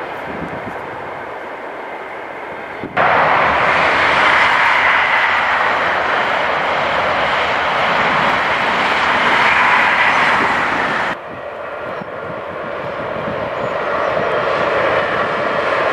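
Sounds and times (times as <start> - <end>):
train passing at speed: 0.0 - 15.9.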